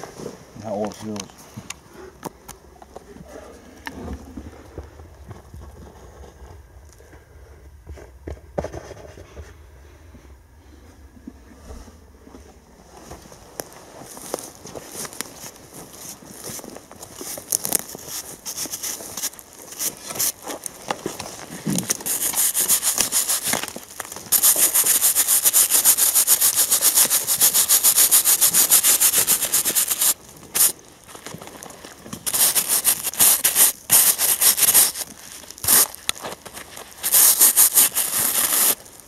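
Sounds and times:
stiff brush scrubbing metal: 0:17.2 - 0:31.6, 0:32.2 - 0:39.0.

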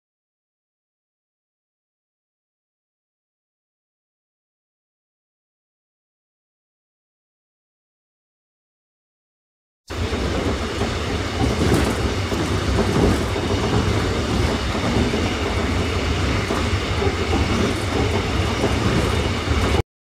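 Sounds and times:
train wheels running on rails: 0:09.9 - 0:19.8.

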